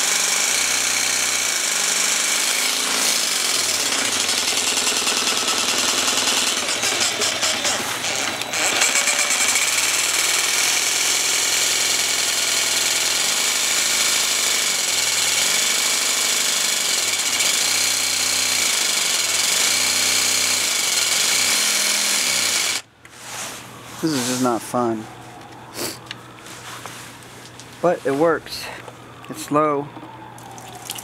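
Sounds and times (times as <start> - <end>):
jigsaw cutting through tile: 0.0 - 22.8.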